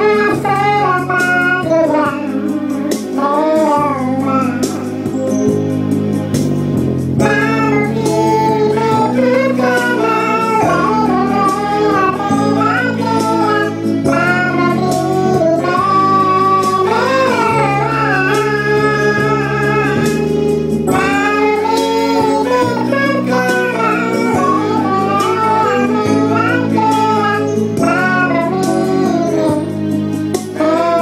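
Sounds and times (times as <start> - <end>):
man singing into a microphone: 0.0 - 5.0, 7.2 - 29.8, 30.5 - 31.0
instrumental accompaniment: 0.0 - 31.0.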